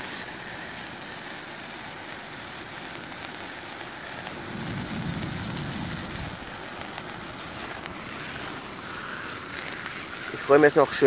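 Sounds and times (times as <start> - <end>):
firework fountain hissing sparks: 0.0 - 11.0
low rumble: 4.2 - 6.7.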